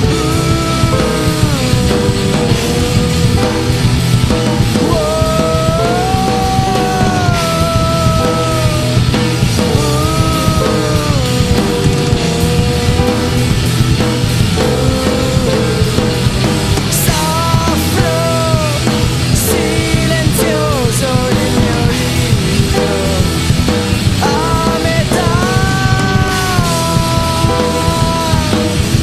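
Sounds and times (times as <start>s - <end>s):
loud rock music: 0.0s - 29.0s.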